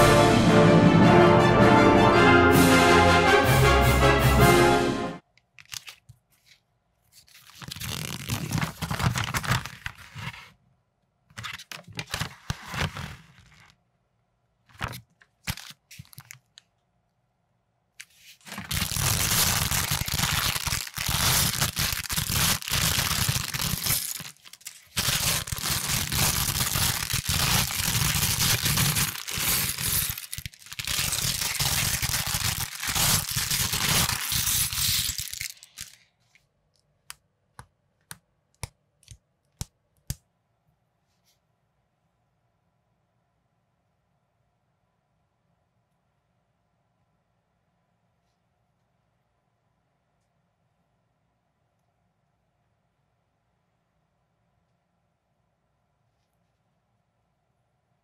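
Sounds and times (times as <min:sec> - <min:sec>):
plastic bag crinkling and tearing: 0:07.2 - 0:10.4, 0:14.8 - 0:16.5, 0:18.4 - 0:36.1.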